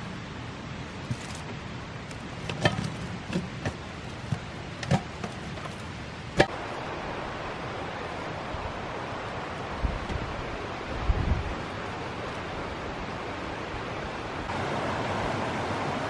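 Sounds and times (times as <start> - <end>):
wind-like rushing: 6.0 - 16.0.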